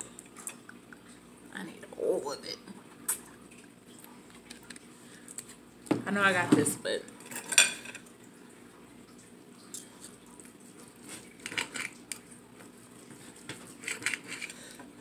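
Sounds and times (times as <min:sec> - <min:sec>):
knife and fork on ceramic plate: 0:13.8 - 0:14.6.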